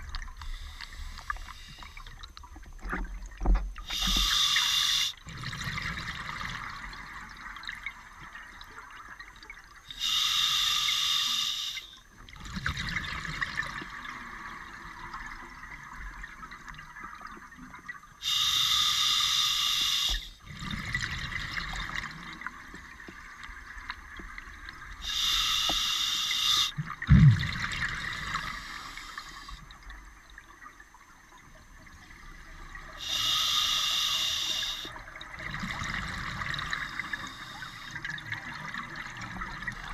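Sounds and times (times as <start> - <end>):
regulator inhale hiss: 0.4 - 2.0, 3.9 - 5.2, 9.9 - 12.0, 18.2 - 20.4, 25.0 - 26.8, 28.2 - 29.6, 33.0 - 35.0, 36.7 - 38.0
exhaled bubbles bursting: 26.8 - 28.5.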